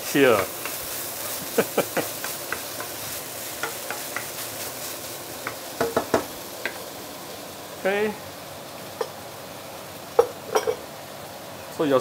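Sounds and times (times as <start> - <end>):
fish sizzling in oil: 0.0 - 12.0
wooden spatula clacking against pan: 2.0 - 3.0, 3.6 - 4.4, 5.4 - 6.8.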